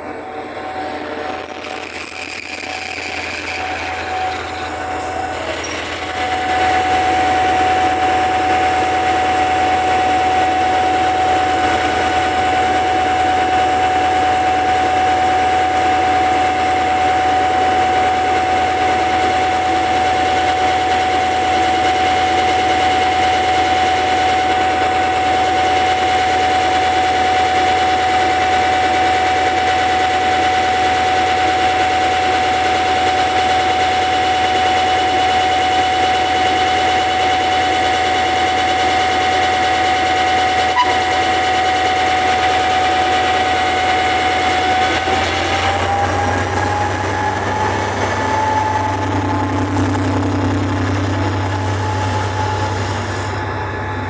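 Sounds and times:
train machinery humming: 0:00.0 - 0:19.8, 0:37.9 - 0:54.0
constant whining tone: 0:00.0 - 0:27.6, 0:32.6 - 0:54.0.

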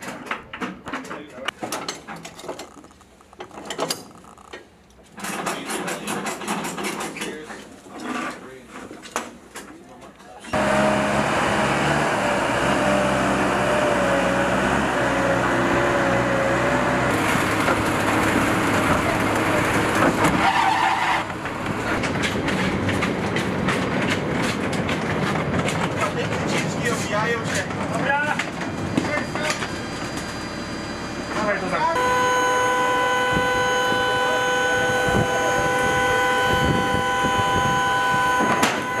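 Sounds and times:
vehicle engine running: 0:10.6 - 0:20.4, 0:28.6 - 0:39.0
wavering whine: 0:29.1 - 0:39.0
low wind rumble: 0:34.9 - 0:37.8.

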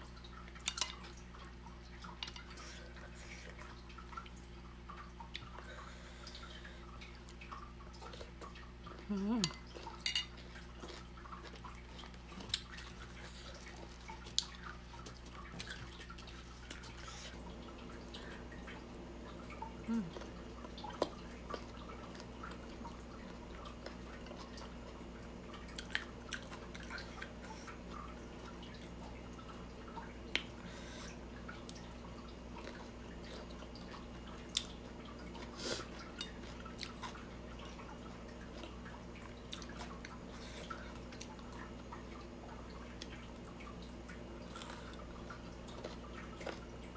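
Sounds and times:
steady low hum: 0:00.0 - 0:46.9
wet chewing: 0:44.4 - 0:46.9.

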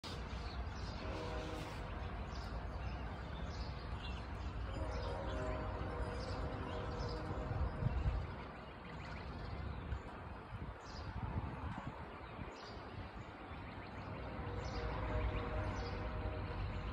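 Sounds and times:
distant train rumbling: 0:00.0 - 0:16.9
train horn: 0:00.8 - 0:02.5, 0:04.4 - 0:08.3, 0:14.2 - 0:16.9.

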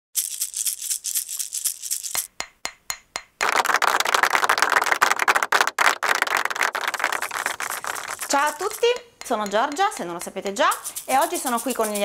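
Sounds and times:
shaker rhythm: 0:00.2 - 0:12.0
sharp ringing taps: 0:08.3 - 0:11.0.

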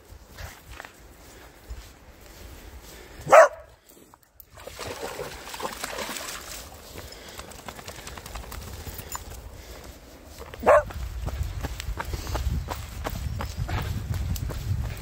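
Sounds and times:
dog barking: 0:03.2 - 0:03.7, 0:10.6 - 0:10.9
dog splashing through water: 0:04.5 - 0:08.9.

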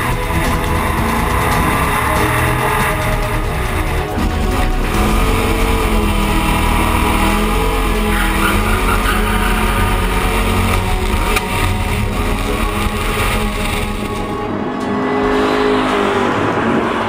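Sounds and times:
car engine running at speed: 0:00.0 - 0:17.0
road rush: 0:00.0 - 0:17.0
wind: 0:00.0 - 0:17.0.

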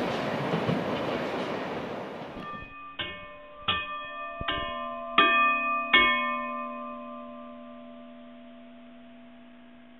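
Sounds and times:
bell-like chime notes: 0:02.4 - 0:09.9.

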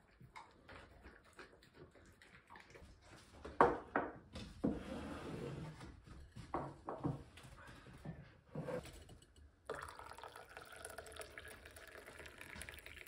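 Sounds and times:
dog chewing and licking: 0:00.0 - 0:03.5
liquid being poured: 0:09.6 - 0:13.0.

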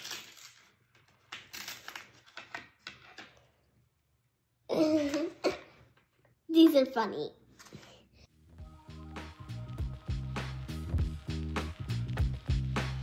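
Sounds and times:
plastic packaging crinkling: 0:00.0 - 0:02.5
child's voice: 0:06.5 - 0:07.5.

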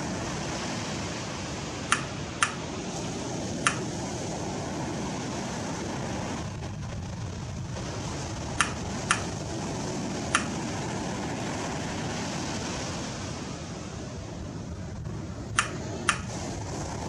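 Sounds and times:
rushing beach ambience: 0:00.0 - 0:17.0
short sharp high clicks: 0:01.9 - 0:02.6, 0:08.6 - 0:09.3.

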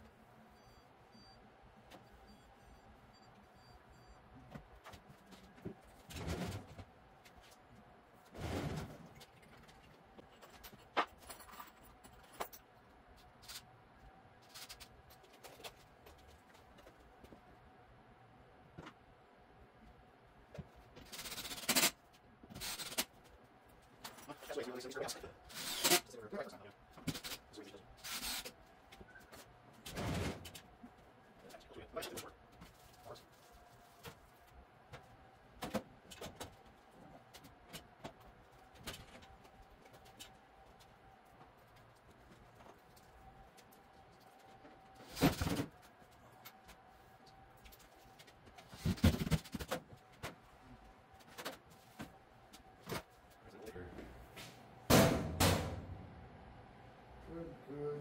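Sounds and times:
faint steady hum: 0:22.0 - 0:58.0.

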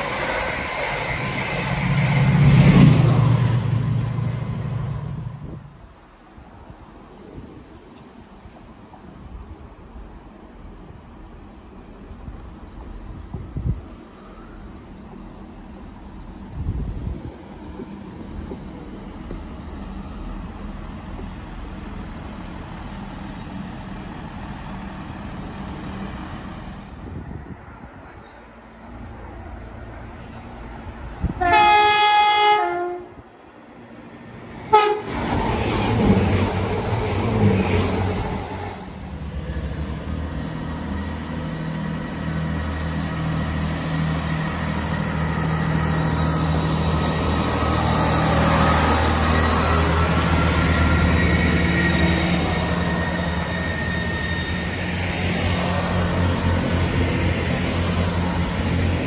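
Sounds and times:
diesel train engines passing: 0:00.0 - 0:59.0
train horn: 0:31.3 - 0:33.3, 0:34.7 - 0:35.2.

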